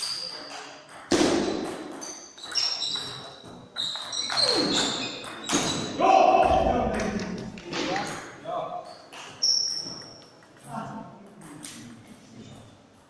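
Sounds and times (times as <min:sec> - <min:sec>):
table tennis ball hits: 0:00.1 - 0:06.0.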